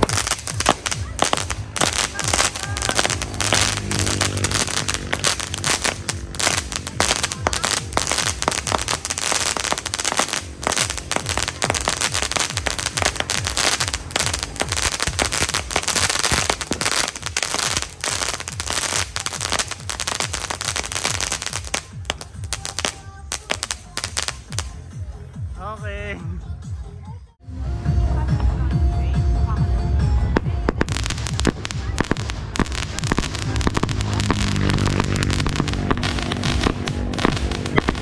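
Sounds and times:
fireworks firing and crackling: 0:00.0 - 0:24.9, 0:30.3 - 0:38.0.

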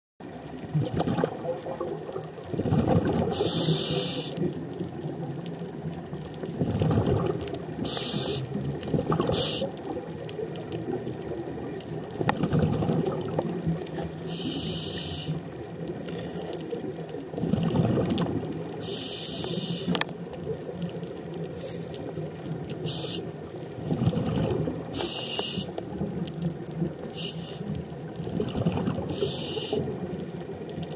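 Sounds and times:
exhaled air bubbling: 0:00.3 - 0:30.9
regulator inhalation hiss: 0:03.3 - 0:04.4, 0:07.8 - 0:08.6, 0:09.3 - 0:09.7, 0:14.3 - 0:15.4, 0:18.8 - 0:20.0, 0:22.8 - 0:23.4, 0:25.0 - 0:25.8, 0:27.1 - 0:27.7, 0:29.1 - 0:29.9.

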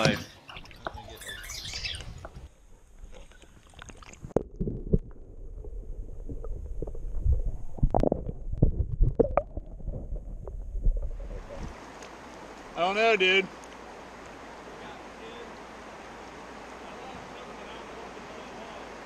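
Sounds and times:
underwater rumbling and sloshing: 0:00.5 - 0:12.8
underwater knocks and thumps: 0:04.0 - 0:11.7.

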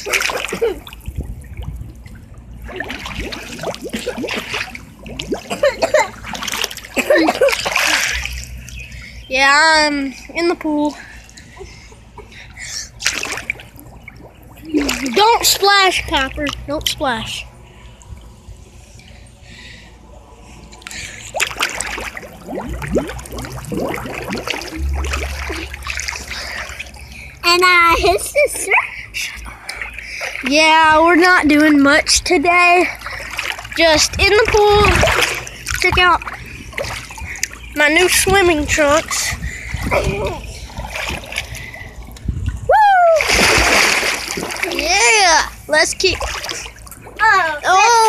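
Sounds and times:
water bubbling and gurgling: 0:00.0 - 0:09.2, 0:12.9 - 0:19.2, 0:20.9 - 0:28.0, 0:32.8 - 0:48.0
muffled underwater rumble: 0:22.4 - 0:27.3.

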